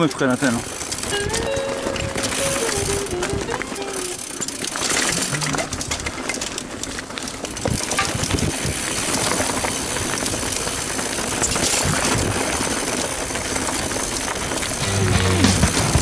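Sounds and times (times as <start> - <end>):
bike rattling: 0.0 - 16.0
tyres crunching over stones: 0.0 - 16.0
wind noise on microphone: 0.9 - 4.2, 7.6 - 14.8.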